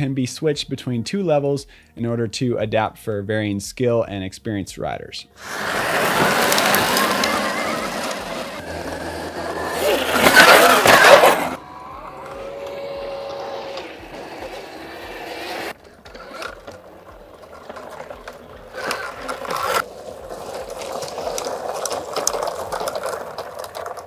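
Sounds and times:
electric motor whine: 0:05.4 - 0:19.8
tyres on dirt: 0:05.4 - 0:24.0.

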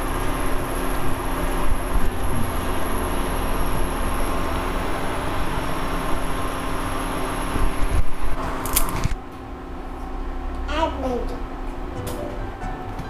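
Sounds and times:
water boiling and bubbling: 0:00.0 - 0:08.7
faint high whine: 0:00.0 - 0:10.7
cooktop hum: 0:00.0 - 0:13.0.

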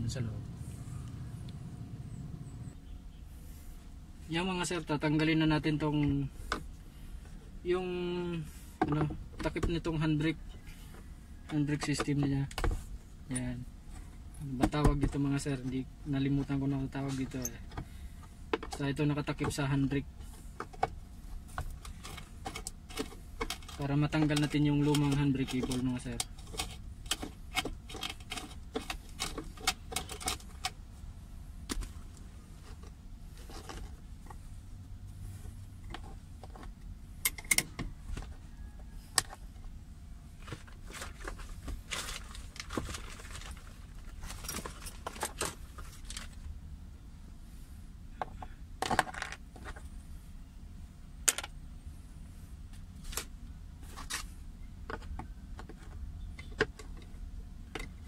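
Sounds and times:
clicks and clinks on plastic console: 0:20.6 - 0:30.8, 0:40.4 - 0:46.4, 0:48.2 - 0:49.9, 0:52.7 - 0:58.0.

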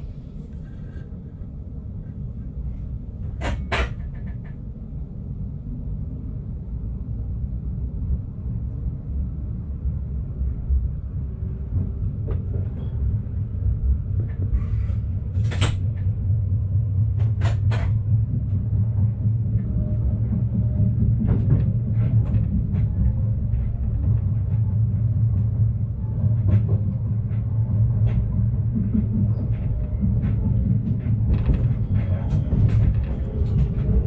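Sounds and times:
train rumbling: 0:00.0 - 0:34.0.

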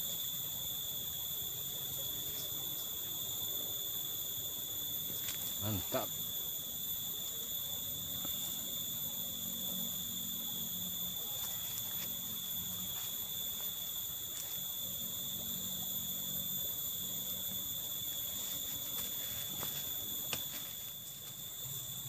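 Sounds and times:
insects calling: 0:00.0 - 0:22.0.

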